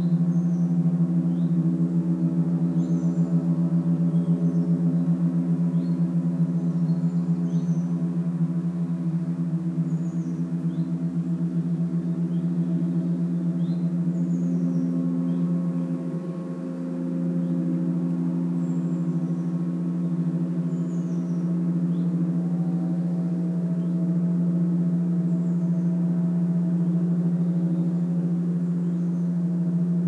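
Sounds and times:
gong ringing: 0:00.0 - 0:30.0.

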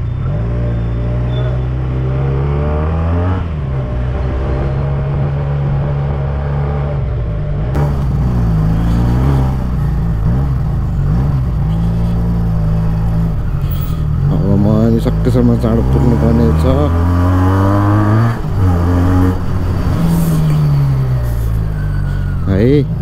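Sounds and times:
motorcycle engine running: 0:07.2 - 0:22.4.

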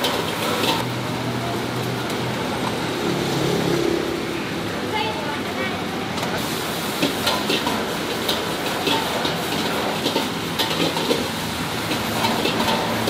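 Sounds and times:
utensils clicking and clattering: 0:00.0 - 0:00.9, 0:07.0 - 0:13.0.

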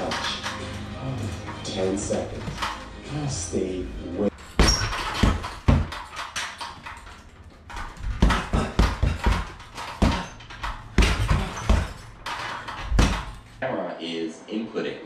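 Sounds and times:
punches hitting heavy bag: 0:04.5 - 0:06.1, 0:07.8 - 0:12.1, 0:12.8 - 0:13.3.

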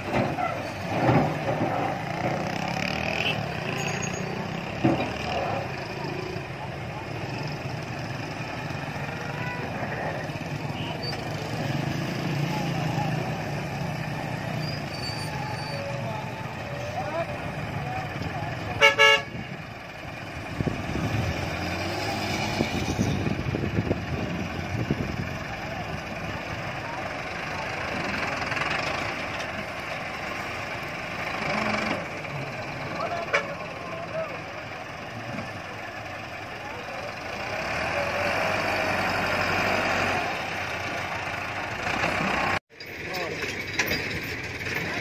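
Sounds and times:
metal clanks and knocks: 0:00.0 - 0:02.6, 0:04.7 - 0:05.4, 0:42.8 - 0:45.0
diesel engines droning: 0:00.0 - 0:45.0.

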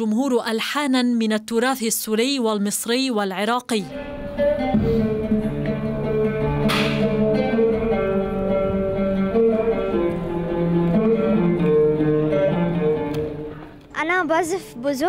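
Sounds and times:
held notes from instruments: 0:03.9 - 0:14.0
oud plucked melody: 0:03.9 - 0:14.5.

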